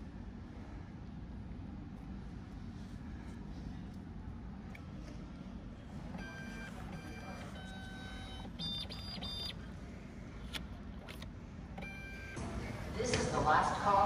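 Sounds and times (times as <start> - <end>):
low machine hum: 0.0 - 14.0
ticket machine beeping: 6.2 - 9.6.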